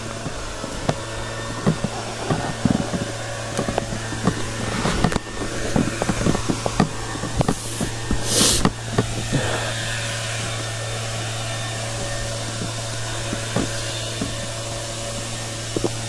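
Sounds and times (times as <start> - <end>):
footsteps on leafy dirt trail: 0.0 - 16.0
low hum: 0.0 - 16.0
steady rushing noise: 0.0 - 16.0.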